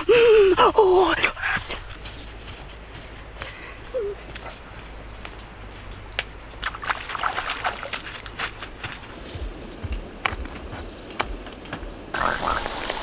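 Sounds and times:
high-pitched insect drone: 0.0 - 13.0
bare feet on wet gravel: 1.7 - 13.0
splashing in shallow water: 6.6 - 9.0.

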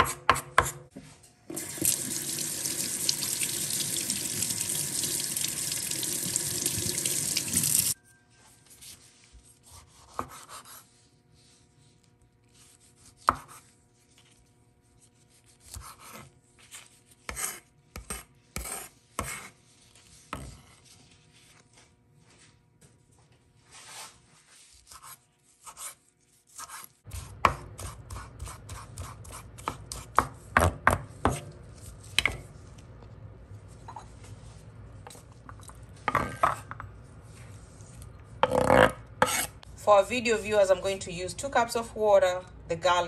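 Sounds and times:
tap water running into sink: 1.5 - 8.0
knife cutting on wooden board: 9.7 - 10.8, 17.3 - 19.6, 24.8 - 30.7, 38.4 - 39.6.

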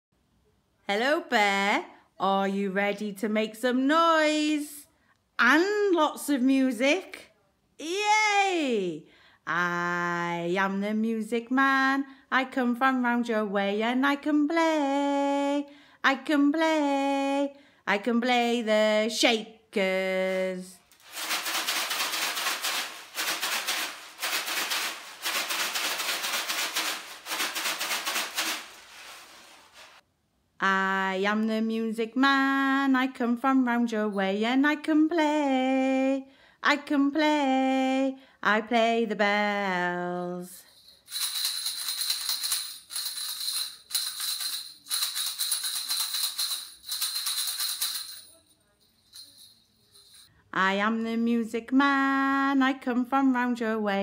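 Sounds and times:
hand shakers rattling: 20.7 - 30.0, 40.6 - 50.3.

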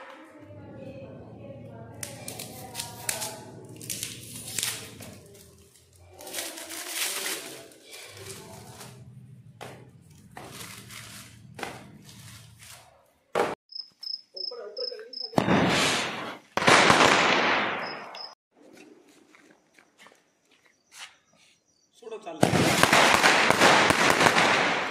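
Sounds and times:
knife scraping paper wrapping: 2.0 - 9.1, 10.0 - 13.1.

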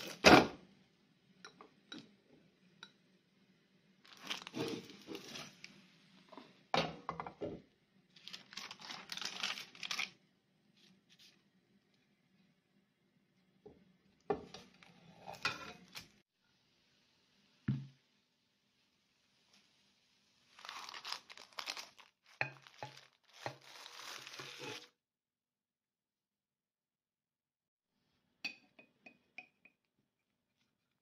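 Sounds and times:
baking parchment crinkling: 4.0 - 5.8, 8.1 - 11.4, 20.4 - 24.9.

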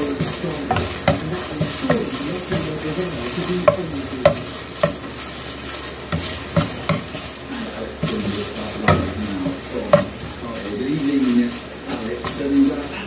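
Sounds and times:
spatula knocking against pan: 0.0 - 5.2, 6.0 - 7.3, 8.0 - 10.4
fish sizzling in a pan: 0.0 - 13.0
plastic spatula scraping a pan: 0.0 - 13.0.

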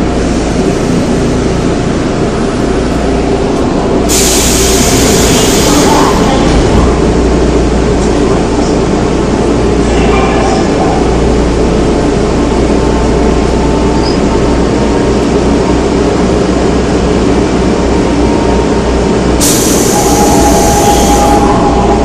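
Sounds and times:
subway train rumbling: 0.0 - 22.0
steady whine: 19.4 - 22.0.

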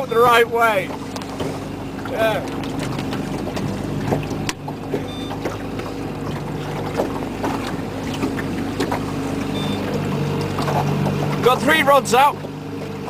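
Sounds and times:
outboard motor running: 0.0 - 13.0
high beep: 9.6 - 9.8.

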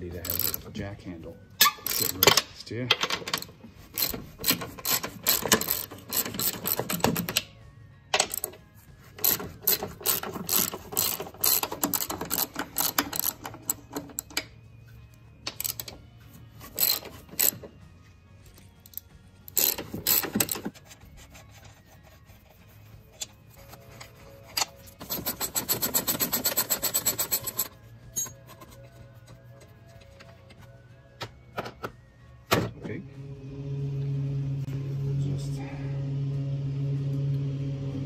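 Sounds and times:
socket ratchet clicking: 3.0 - 7.5, 9.2 - 14.4, 16.7 - 17.6, 18.9 - 20.7.

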